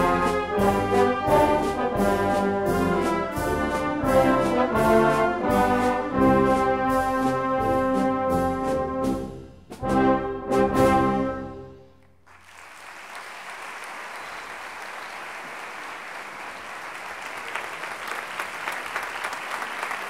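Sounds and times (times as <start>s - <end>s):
brass chord: 0.0s - 11.9s
audience applauding: 12.2s - 20.0s.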